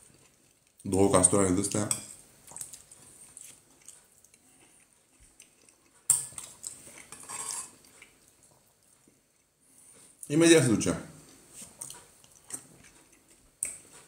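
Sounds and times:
metal spoon scraping ceramic bowl: 7.1 - 7.8.

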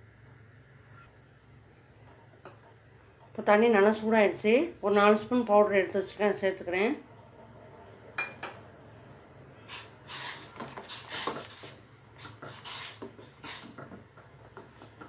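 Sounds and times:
spoon scraping inside pot: 9.7 - 13.9.

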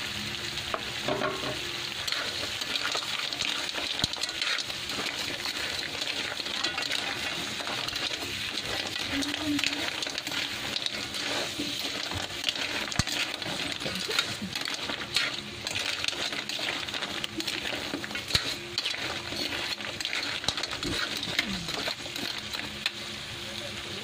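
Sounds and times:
steady sizzle: 0.0 - 24.0.

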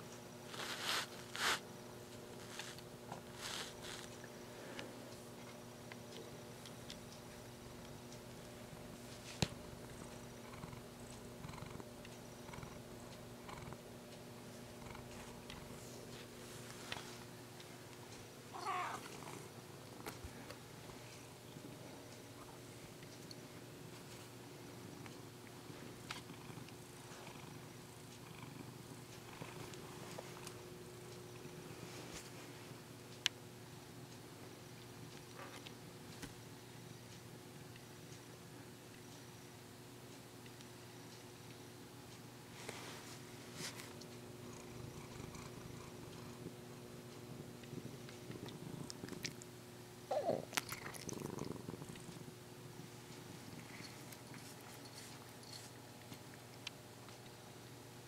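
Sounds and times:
cat purring: 2.4 - 4.3, 8.8 - 17.2, 21.0 - 32.0, 44.2 - 55.8.

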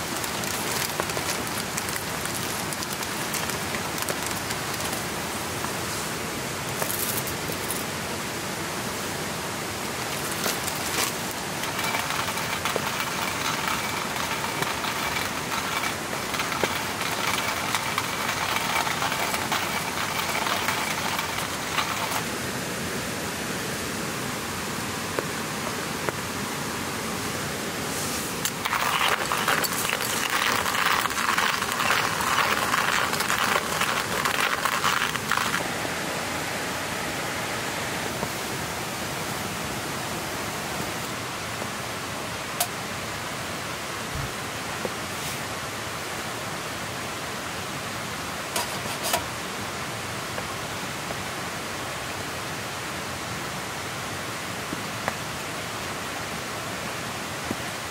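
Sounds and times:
raindrops pattering: 0.0 - 5.2, 9.9 - 22.3, 28.4 - 35.7
steady rain falling: 0.0 - 57.9.

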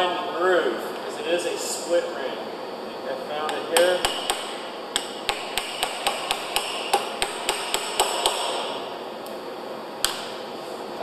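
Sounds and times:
hammer tapping chisel on metal: 3.4 - 8.7.

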